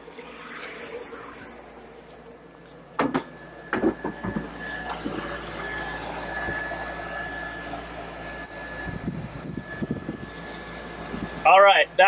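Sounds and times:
thin steady whine: 0.0 - 12.0
air conditioner blowing air: 3.1 - 12.0.

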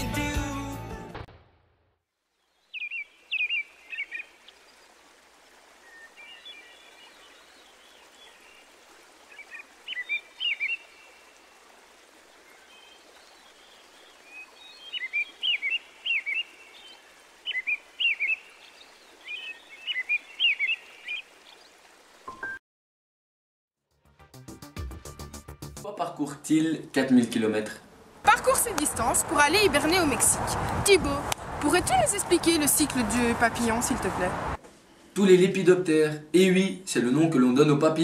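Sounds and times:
birds chirping: 2.4 - 5.1, 5.8 - 8.7, 9.3 - 11.4, 12.4 - 22.5, 28.0 - 34.6.

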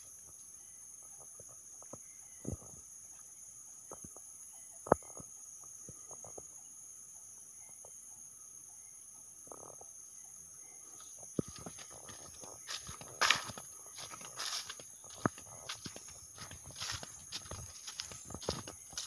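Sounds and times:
high-pitched insect drone: 8.7 - 19.0
footsteps through dry leaves: 11.6 - 19.0.

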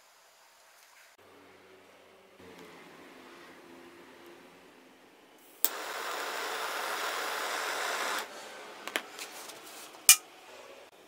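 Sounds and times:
steady hiss: 5.4 - 9.7.

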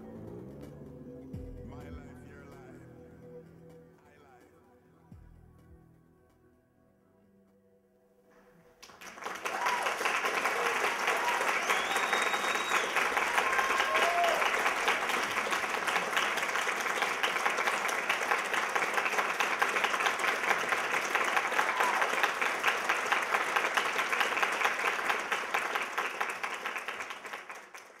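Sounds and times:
audience applauding: 8.8 - 28.0.

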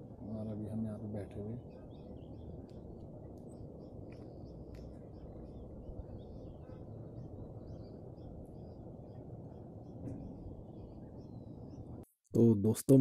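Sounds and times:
low background rush: 0.0 - 13.0
high bird chirps: 1.6 - 12.0.

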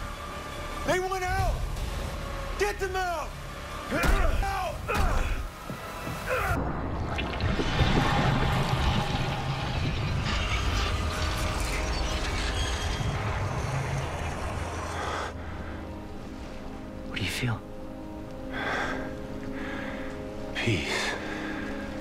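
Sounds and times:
rushing crackling texture: 5.9 - 16.3
low steady drone: 6.6 - 22.0.

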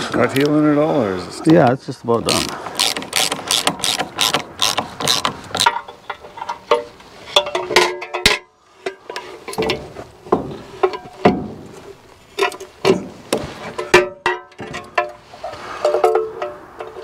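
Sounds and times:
socket wrench ratcheting: 2.3 - 5.9.

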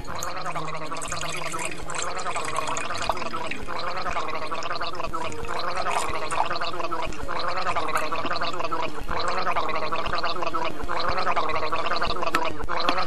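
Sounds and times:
drink glugging into mug: 0.0 - 10.4.

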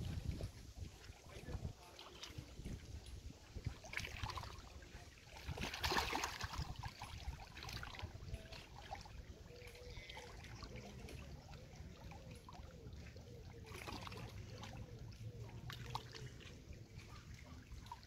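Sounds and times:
wind buffeting microphone: 0.0 - 9.4
small waves lapping: 0.0 - 18.0.

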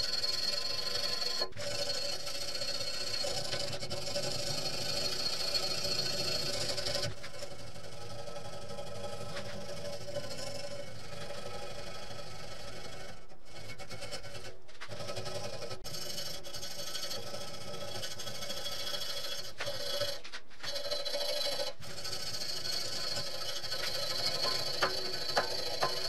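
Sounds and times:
wire brush scratching metal: 0.0 - 26.0.

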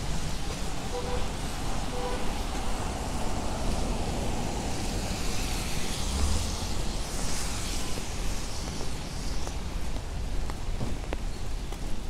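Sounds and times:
low rumble of traffic: 0.0 - 12.0
tyre hiss on wet pavement: 0.0 - 12.0
vehicle passing: 3.8 - 7.8.

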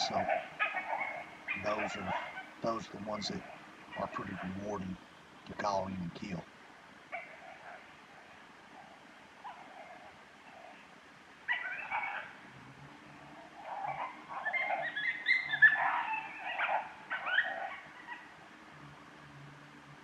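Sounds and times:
coyote whines and yelps: 0.0 - 4.6, 7.1 - 12.5, 13.1 - 18.5.

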